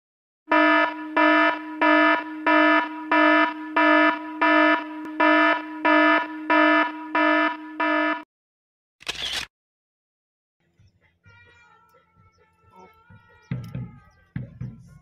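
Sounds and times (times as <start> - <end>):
pulsing buzzer alarm: 0.5 - 8.3.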